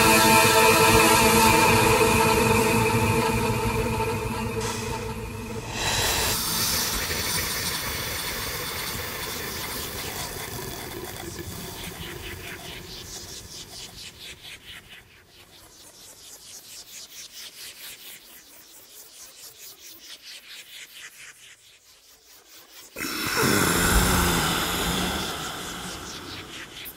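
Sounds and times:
electronic noise hiss: 23.0 - 26.9.

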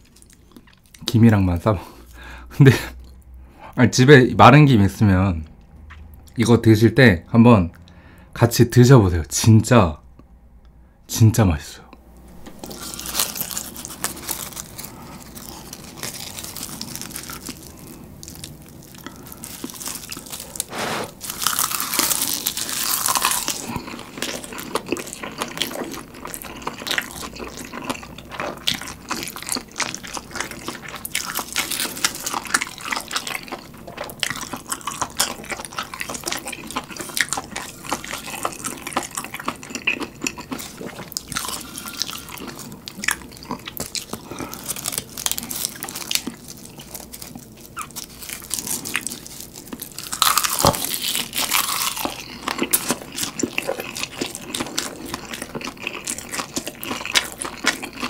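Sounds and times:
chewing and slurping noodles: 12.6 - 58.0
dry seaweed crackling: 12.8 - 23.7.

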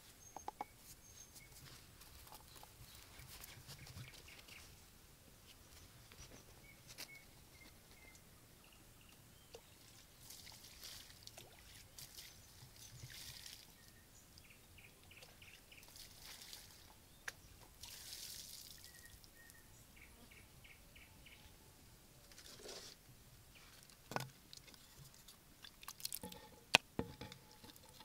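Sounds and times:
soft rustling: 0.8 - 4.8.

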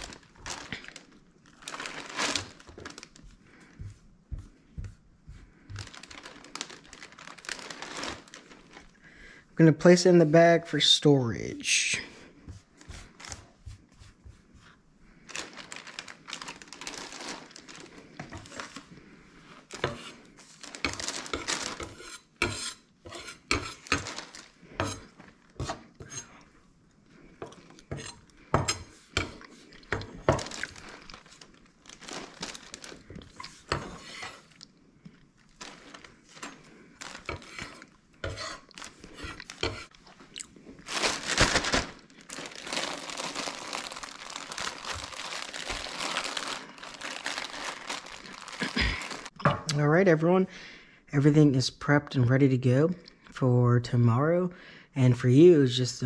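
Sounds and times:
plastic bag crinkling: 0.0 - 3.8, 5.6 - 9.1, 15.2 - 22.0, 23.8 - 25.7, 29.2 - 49.4
knife on wooden cutting board: 37.3 - 38.6.

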